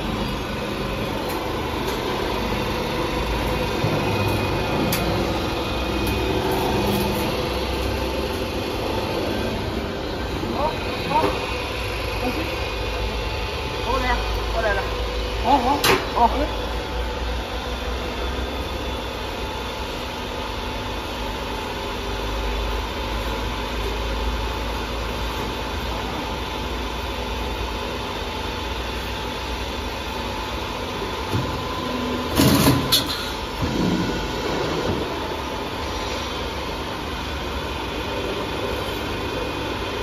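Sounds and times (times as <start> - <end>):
roll forming machine humming: 0.0 - 40.0.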